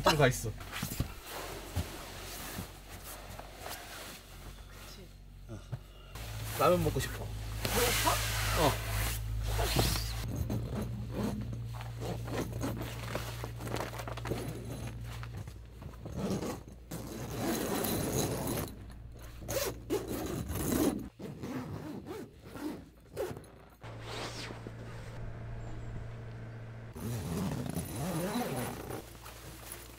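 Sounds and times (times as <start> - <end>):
vinyl and fabric rustling: 0.2 - 5.2, 6.2 - 29.9
zippers being pulled open: 7.6 - 25.9, 27.0 - 29.2.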